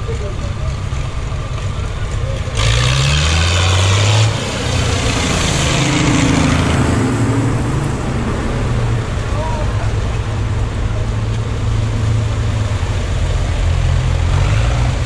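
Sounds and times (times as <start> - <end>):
tractor engine chugging: 0.0 - 2.6
tyres splashing water: 0.0 - 15.0.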